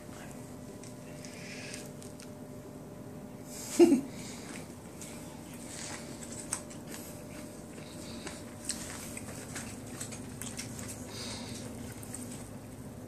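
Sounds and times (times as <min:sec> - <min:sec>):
low room hum: 0:00.0 - 0:13.0
wet chewing clicks and smacks: 0:00.8 - 0:02.4, 0:05.4 - 0:13.0.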